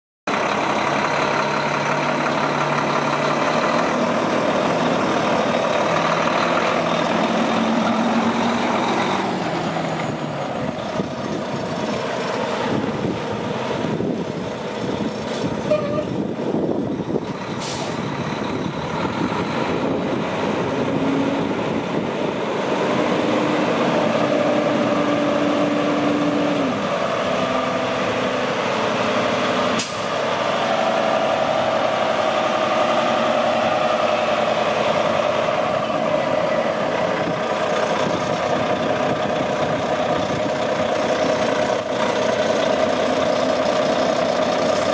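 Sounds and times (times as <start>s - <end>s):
diesel truck engine running: 0.3s - 44.9s
air brake hiss: 17.6s - 18.0s, 29.8s - 30.2s.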